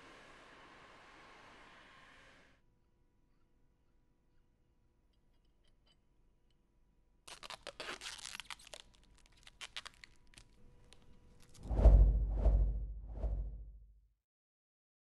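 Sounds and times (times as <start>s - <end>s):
plastic film crinkling and tearing: 7.3s - 11.6s.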